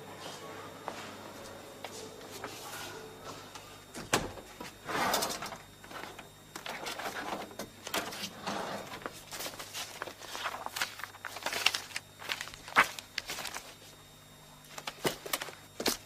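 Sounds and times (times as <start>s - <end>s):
papers rustling: 4.6s - 14.0s, 14.7s - 16.0s.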